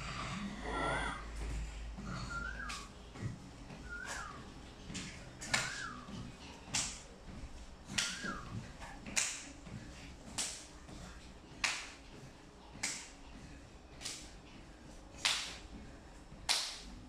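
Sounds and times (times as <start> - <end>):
trampoline mat slapping: 4.0 - 11.0, 11.6 - 12.0, 12.8 - 13.2, 15.2 - 15.8, 16.4 - 17.0.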